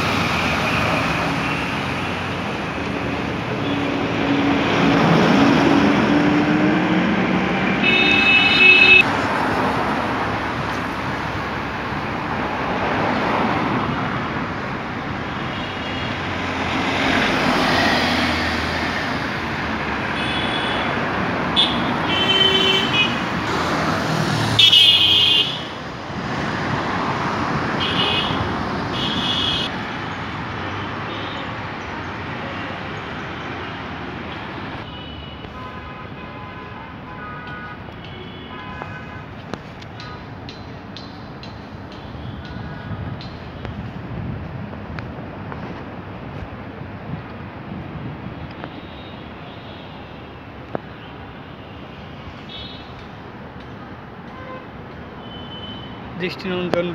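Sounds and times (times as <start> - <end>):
city road traffic: 0.0 - 56.9
vehicle horns honking: 7.8 - 9.1, 20.1 - 20.9, 21.5 - 23.2, 24.6 - 25.7, 27.8 - 29.7, 54.3 - 56.0.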